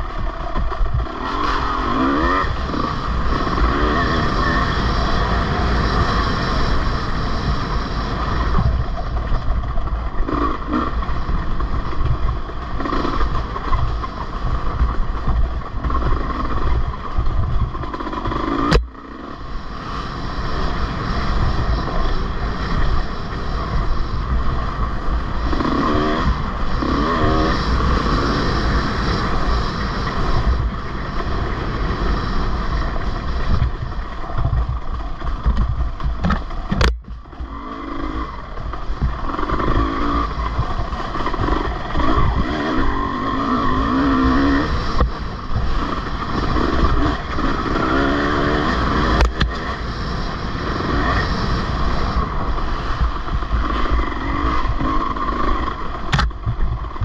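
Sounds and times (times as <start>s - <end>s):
wind rush over microphone: 0.0s - 57.0s.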